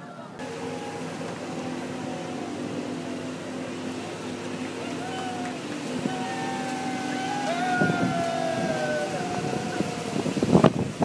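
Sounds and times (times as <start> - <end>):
distant voices calling out: 0.0 - 11.0
boat motors droning: 0.2 - 11.0.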